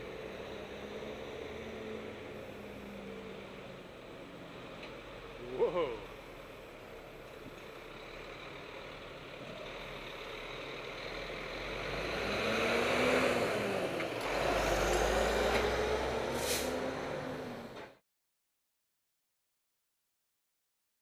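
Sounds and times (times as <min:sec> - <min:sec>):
truck diesel engine passing: 0:00.0 - 0:18.0
short sharp hiss: 0:16.4 - 0:16.8.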